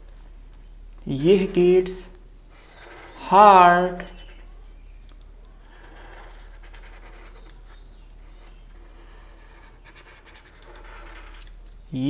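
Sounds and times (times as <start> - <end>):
steady low hum: 0.0 - 12.0
felt-tip marker scratching paper: 2.6 - 4.5, 5.6 - 11.5.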